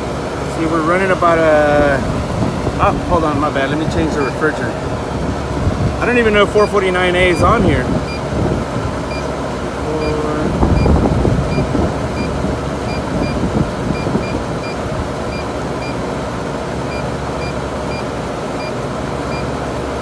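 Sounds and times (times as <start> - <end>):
refrigeration unit humming: 0.0 - 20.0
short electronic beeps: 9.1 - 9.3, 11.5 - 12.3.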